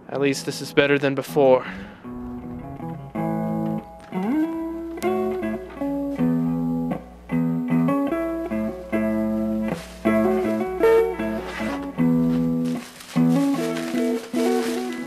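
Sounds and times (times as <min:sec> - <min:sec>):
guitar music: 0:00.0 - 0:15.0.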